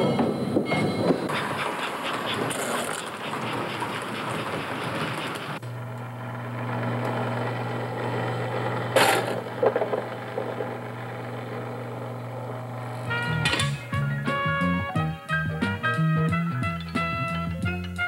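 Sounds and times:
electric motor hum: 4.6 - 13.8.

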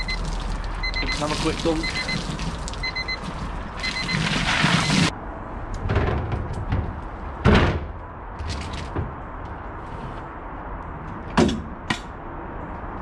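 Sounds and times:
short electronic beeps: 0.0 - 5.1
water sloshing and splashing: 0.0 - 5.1.

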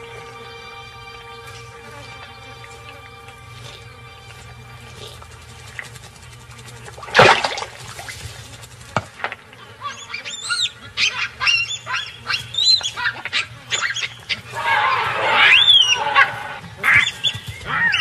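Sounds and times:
baboons barking and screaming: 9.4 - 18.0.

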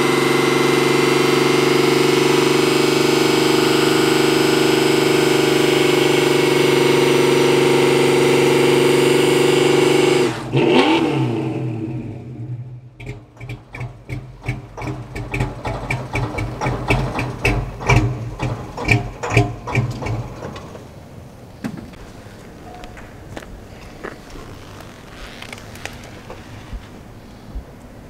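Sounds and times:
car engine revving then idling: 0.0 - 21.4
exhaust pops: 13.0 - 21.0, 21.6 - 27.7.

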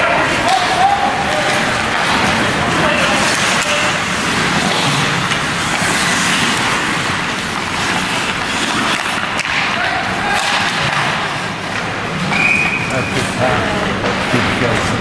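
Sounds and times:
faint voices of players: 0.0 - 5.3, 12.7 - 15.0
hockey sticks and puck clacking: 0.0 - 15.0
skates scraping ice: 0.0 - 15.0.

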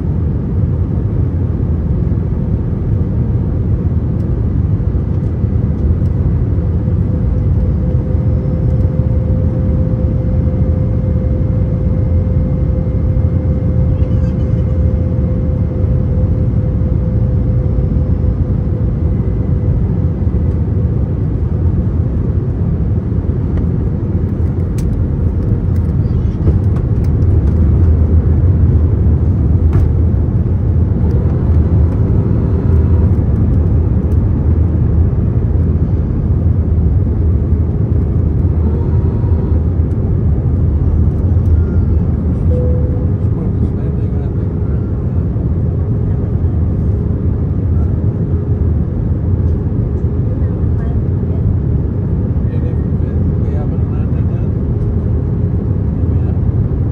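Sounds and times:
airliner cabin roar: 0.0 - 56.9
faint tone: 7.4 - 19.8, 41.4 - 43.8.

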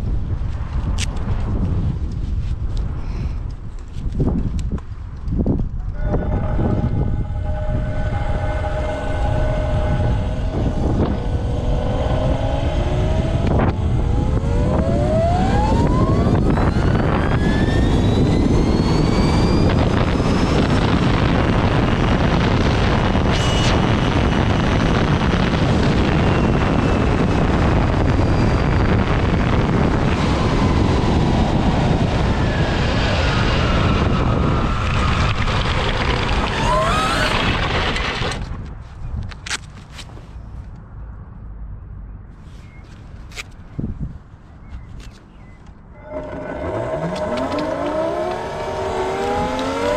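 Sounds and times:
electric motors whining: 5.9 - 30.6, 33.2 - 38.4, 46.0 - 49.9
rushing noise at speed: 5.9 - 38.6.

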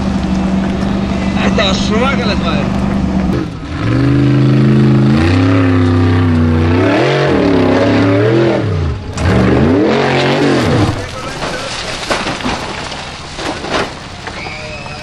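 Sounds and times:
buggy engine revving hard: 0.0 - 11.4.

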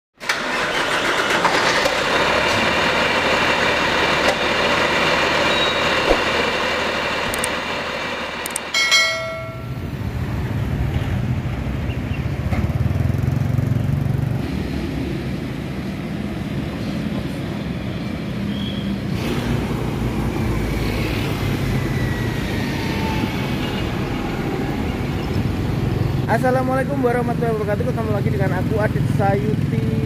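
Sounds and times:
click: 7.3 - 7.5
ringing bell chime: 8.8 - 9.9.

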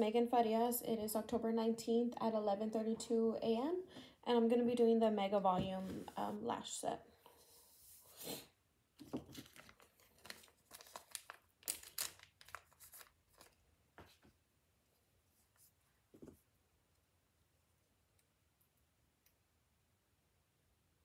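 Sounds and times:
crinkling and tearing by hand: 9.1 - 13.6.

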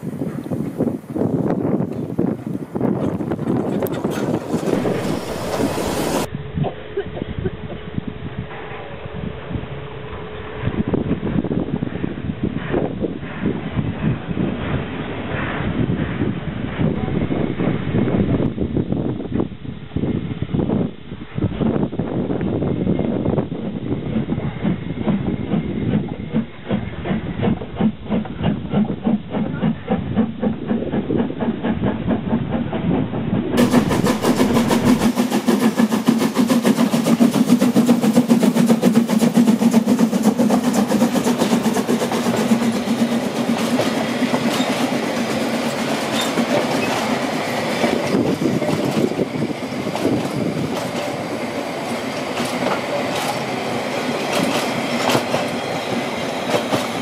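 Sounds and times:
steam locomotive exhaust beating: 0.0 - 57.0
train wheels clicking over rail joints: 0.2 - 6.3, 23.7 - 57.0
steam hissing: 4.3 - 6.3, 33.6 - 57.0.

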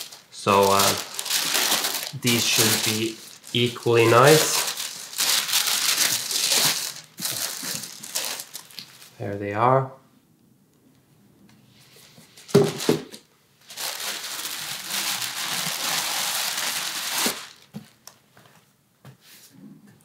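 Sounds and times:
tissue paper rustling and crinkling: 0.0 - 9.2, 12.4 - 18.0.

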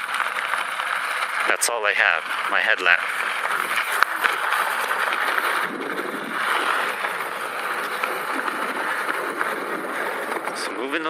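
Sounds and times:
wind and tyre noise: 0.0 - 11.0.

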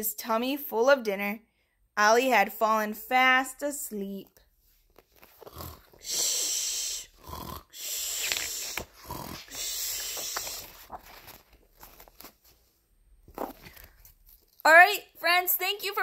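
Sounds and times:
woman imitating snoring: 5.4 - 8.2, 9.0 - 10.0
faint breathing: 5.6 - 10.9.

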